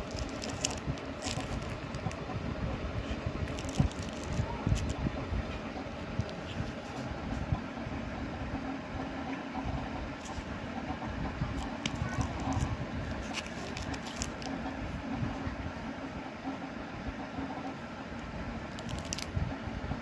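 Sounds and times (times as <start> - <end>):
plastic cases crinkling and clicking: 0.0 - 2.2, 3.5 - 5.0, 11.6 - 14.5, 18.7 - 19.3
steady low rumble: 0.0 - 20.0.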